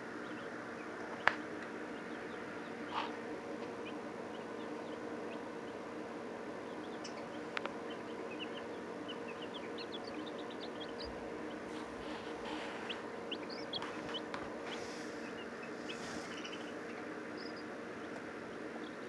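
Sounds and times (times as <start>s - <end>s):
chick peeping: 0.0s - 19.0s
soft rustling: 13.8s - 16.8s.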